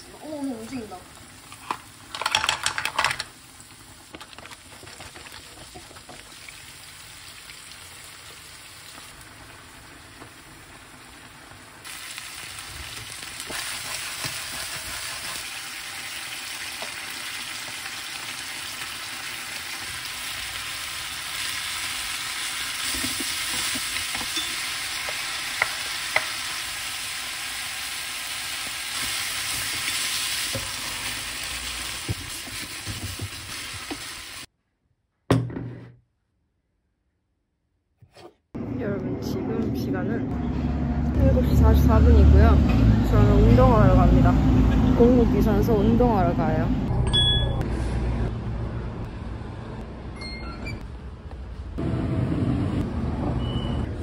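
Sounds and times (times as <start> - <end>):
food sizzling in frying pan: 5.2 - 34.5.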